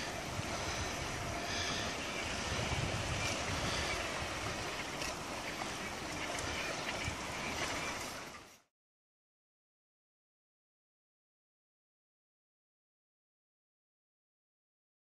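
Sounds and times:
wind buffeting microphone: 0:00.0 - 0:08.4
waves washing on beach: 0:00.0 - 0:08.7.

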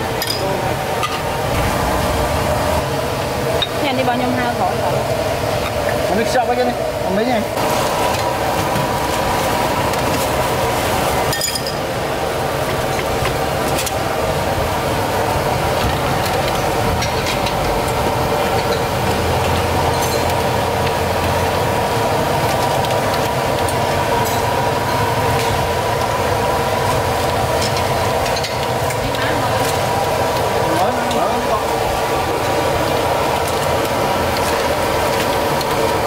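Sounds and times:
kitchen noise rush: 0:00.0 - 0:36.0
porcelain bowls and utensils clinking: 0:00.2 - 0:01.3, 0:11.3 - 0:11.9, 0:18.4 - 0:20.5.

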